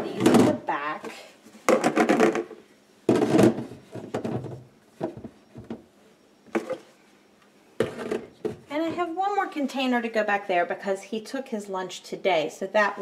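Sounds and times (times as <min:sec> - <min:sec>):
plastic containers sliding and clattering: 0:00.0 - 0:05.8, 0:06.5 - 0:07.0, 0:07.8 - 0:09.1.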